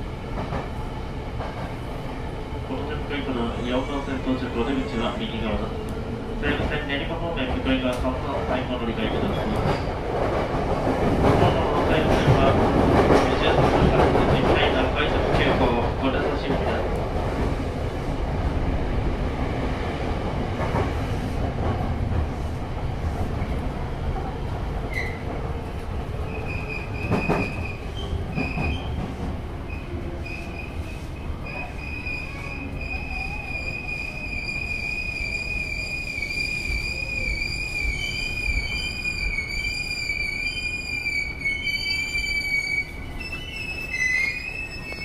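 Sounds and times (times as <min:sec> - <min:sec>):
train wheels rumbling on rail: 0:00.0 - 0:45.0
high metallic wheel squeal: 0:37.9 - 0:45.0.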